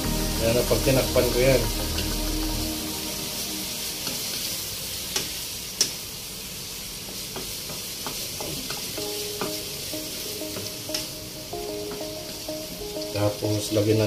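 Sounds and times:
squid sizzling in hot oil: 0.0 - 14.0
spatula knocking on pan: 7.1 - 9.7.

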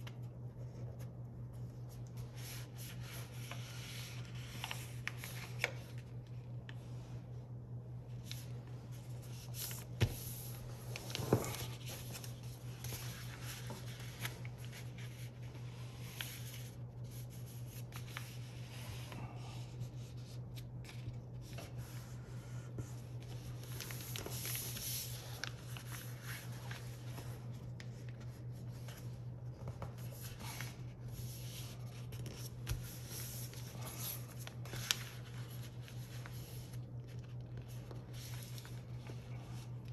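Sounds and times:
steady low hum: 0.0 - 39.9
paper rustling and scraping: 8.2 - 19.2, 19.8 - 39.9.

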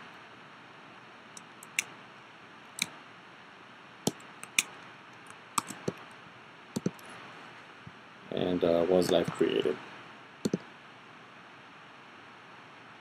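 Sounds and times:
faint steady hiss: 0.0 - 13.0
mouse and keyboard clicks: 1.4 - 1.9, 4.1 - 6.0, 6.8 - 7.0.

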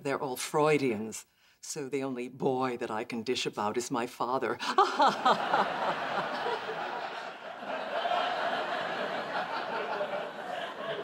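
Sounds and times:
audience laughing: 4.7 - 11.0.

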